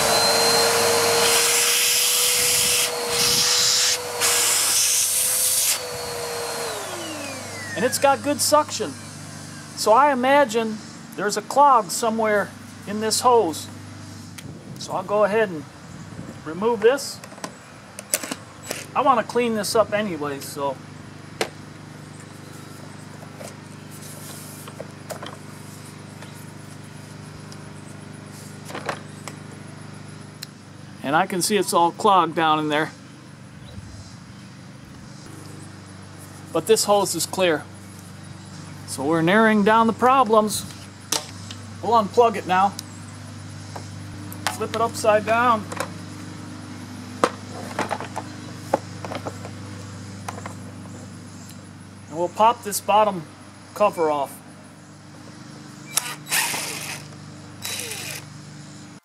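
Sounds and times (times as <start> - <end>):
vacuum cleaner motor whining: 0.0 - 9.7, 55.8 - 58.4.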